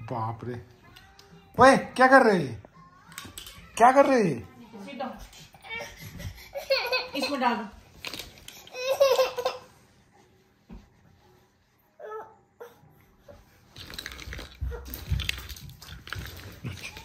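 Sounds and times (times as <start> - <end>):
rustling and handling noise: 2.6 - 12.1, 13.2 - 17.0.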